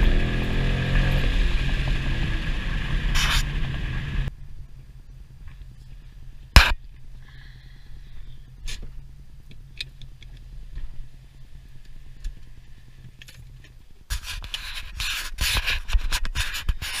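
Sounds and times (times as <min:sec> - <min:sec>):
car engine idling: 0:00.0 - 0:13.7
camera handling rubbing: 0:14.1 - 0:17.0.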